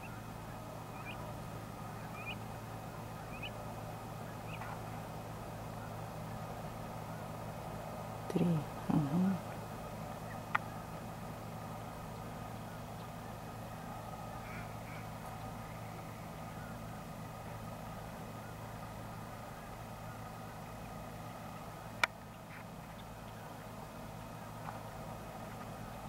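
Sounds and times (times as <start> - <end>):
faint ducks quacking: 0.0 - 7.4, 12.2 - 20.8
steady low hum: 0.0 - 26.0.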